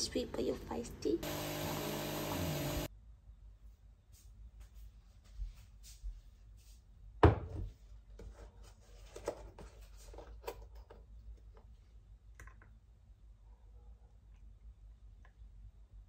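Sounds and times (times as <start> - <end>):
loud thump on hard surface: 7.2 - 7.7.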